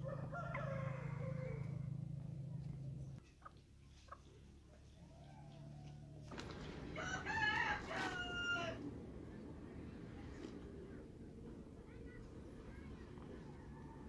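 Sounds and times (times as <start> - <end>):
rooster crowing: 0.0 - 2.0, 6.9 - 8.8.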